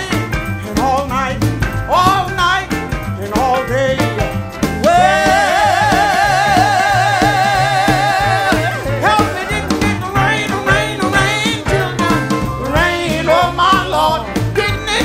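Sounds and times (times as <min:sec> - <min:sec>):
gospel band: 0:00.0 - 0:15.0
woman singing with vibrato: 0:04.8 - 0:14.0.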